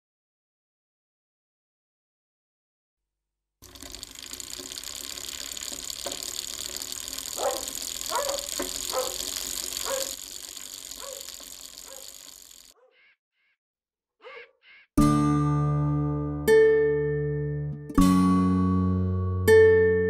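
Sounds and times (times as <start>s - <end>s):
bicycle creaking squeaks: 3.6s - 12.8s
high-pitched night ambience hiss: 3.7s - 12.7s.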